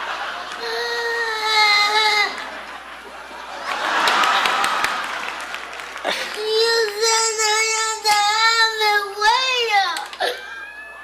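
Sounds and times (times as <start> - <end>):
young child crying: 0.6 - 2.5, 6.1 - 11.0.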